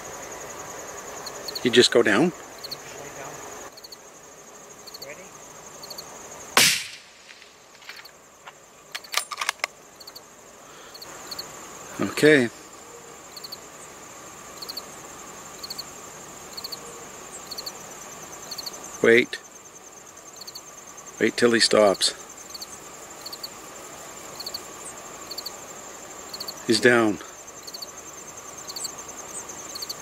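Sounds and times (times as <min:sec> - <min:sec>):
insects chirring: 0:00.0 - 0:30.0
rifle shot: 0:06.6 - 0:07.4.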